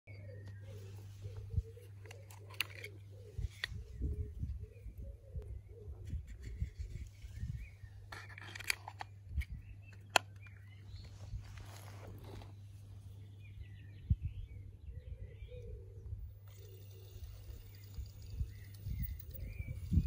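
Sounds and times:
pigeon cooing: 0.1 - 7.0
birds chirping: 0.1 - 20.0.

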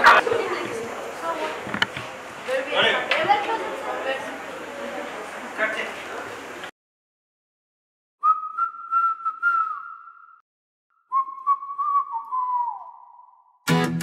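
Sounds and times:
person whistling a melody: 8.2 - 10.4, 11.0 - 13.6.

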